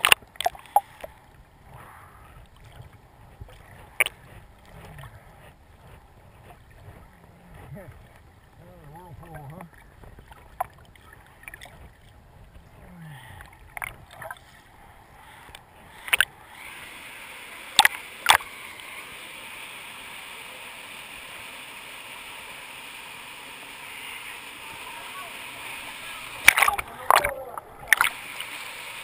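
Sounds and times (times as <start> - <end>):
muffled underwater churn: 0.0 - 29.0
people wading through water: 0.0 - 29.0
turbulent whitewater rushing: 22.3 - 29.0.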